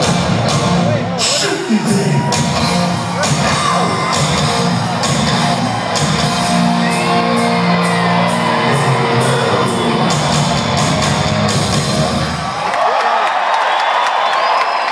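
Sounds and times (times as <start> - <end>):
crowd shouting: 1.2 - 14.9
electric guitar chords: 2.0 - 12.4.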